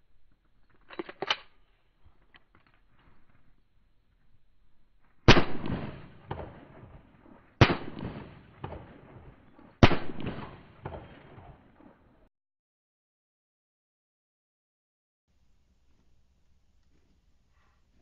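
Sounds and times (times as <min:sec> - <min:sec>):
pistol clicks: 0:00.8 - 0:01.6
pistol shots with echo: 0:05.3 - 0:12.1.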